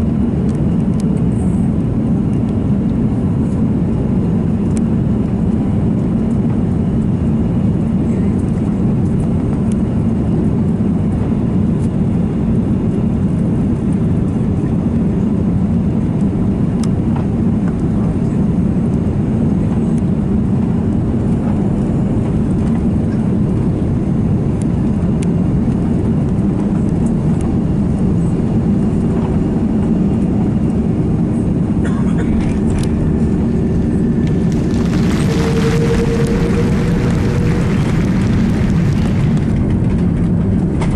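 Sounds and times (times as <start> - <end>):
airplane engines rumbling: 0.0 - 40.9
air rushing over airframe: 32.8 - 40.2.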